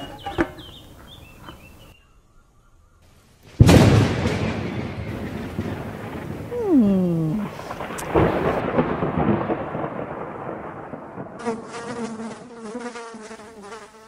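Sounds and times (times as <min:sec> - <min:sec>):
thunder crack and rumble: 0:03.6 - 0:11.5
falling tone: 0:06.5 - 0:08.5
insect buzzing: 0:11.4 - 0:14.0.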